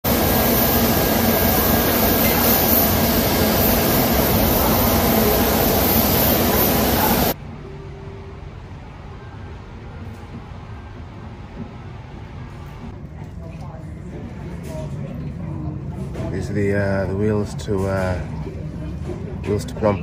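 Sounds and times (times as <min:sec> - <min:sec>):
jet engines roaring: 0:00.0 - 0:07.4
rushing air: 0:00.0 - 0:07.4.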